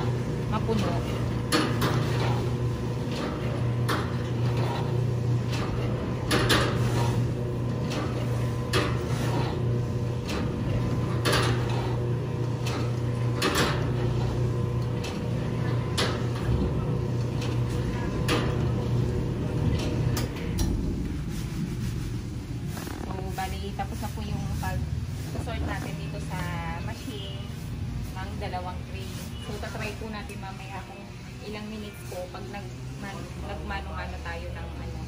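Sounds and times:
machine motor hum: 0.0s - 23.6s.

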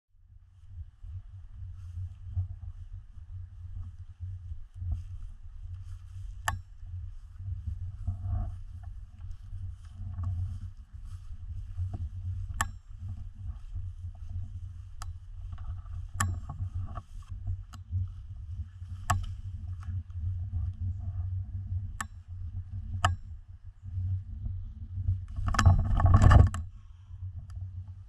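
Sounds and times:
wind rumble: 0.2s - 28.0s
footsteps through tall grass: 0.6s - 21.1s.

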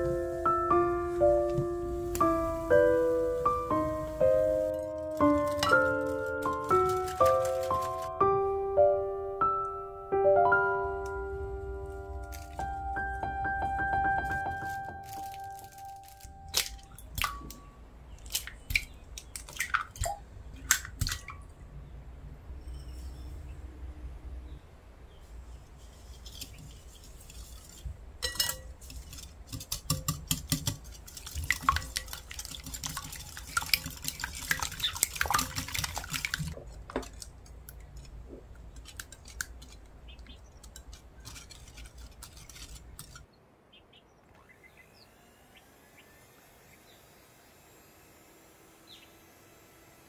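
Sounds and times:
whisk clinking in glass bowl: 28.2s - 36.4s.

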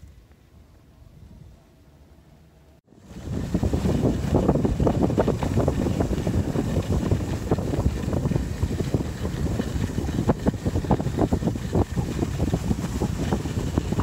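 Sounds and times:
wind buffeting microphone: 2.9s - 14.0s.

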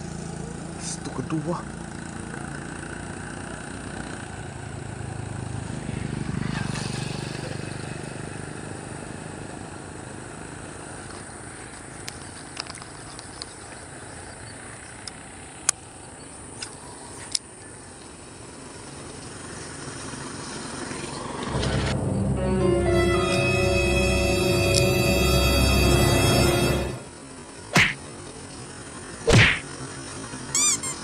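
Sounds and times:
distant motor engine running: 0.0s - 11.0s.

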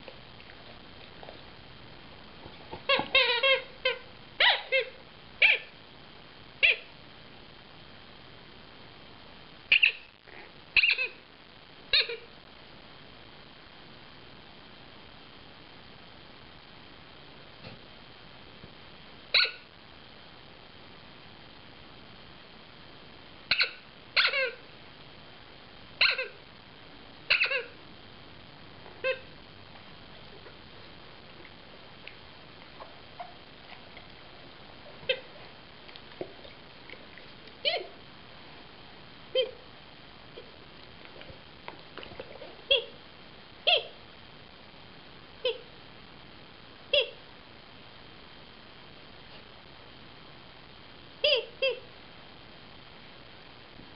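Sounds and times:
rubber squeak toy squeaking: 2.8s - 5.6s, 23.5s - 24.6s.

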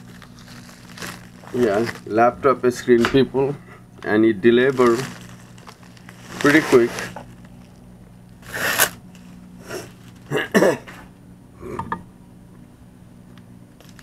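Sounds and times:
plastic envelope crinkling: 0.0s - 3.0s, 4.0s - 10.4s, 13.8s - 14.0s
steady low hum: 0.0s - 14.0s
throat or voice sound: 11.6s - 12.0s.

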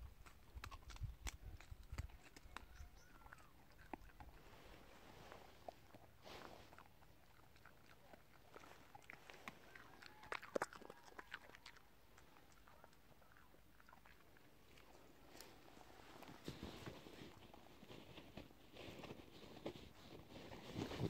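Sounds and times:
dog crunching dry pods: 0.0s - 4.8s, 5.6s - 19.9s.

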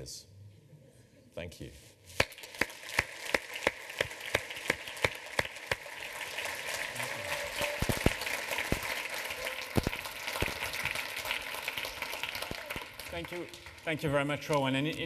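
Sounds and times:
audience applause: 2.2s - 15.0s
close single person clapping: 7.0s - 13.4s.

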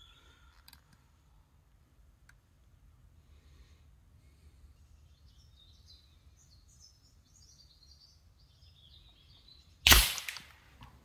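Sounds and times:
small birds chirping: 0.0s - 1.2s, 3.3s - 9.9s
air rifle shot: 9.8s - 10.6s.

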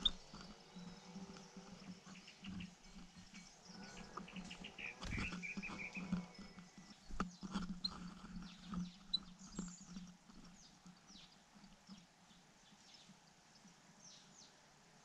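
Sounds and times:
bird rustling on nest: 0.0s - 11.0s.

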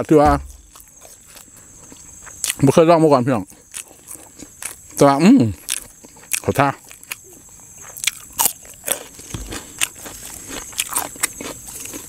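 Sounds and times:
chewing crunchy cucumber: 0.4s - 2.8s, 3.4s - 12.0s.

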